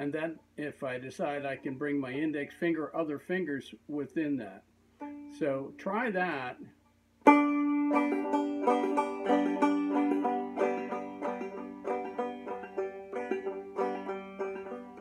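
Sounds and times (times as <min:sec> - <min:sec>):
banjo plucked notes: 0:05.0 - 0:05.5, 0:07.2 - 0:15.0.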